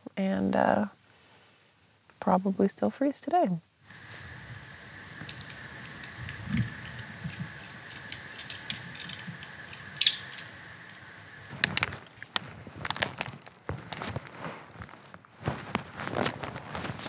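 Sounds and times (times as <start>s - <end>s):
small birds chirping: 3.9s - 12.2s
light ticks: 5.2s - 10.5s
crunching and cracking: 11.5s - 17.0s.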